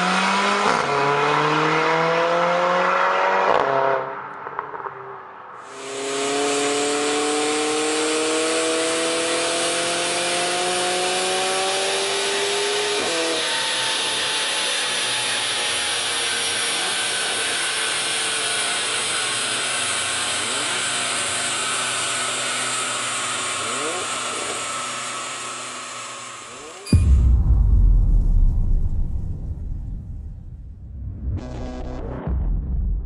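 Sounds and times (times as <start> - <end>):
car engine revving on dyno: 0.0 - 4.3, 5.6 - 27.0.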